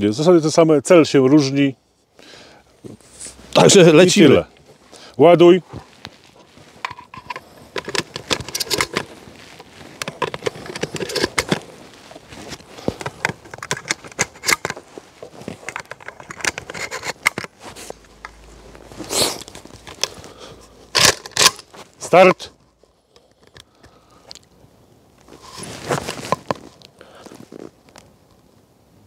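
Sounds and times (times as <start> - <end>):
shotgun being loaded: 21.0 - 21.7.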